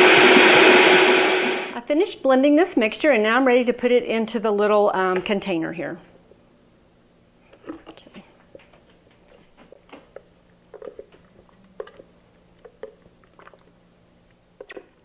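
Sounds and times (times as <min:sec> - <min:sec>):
wet squelches: 0:07.5 - 0:15.0.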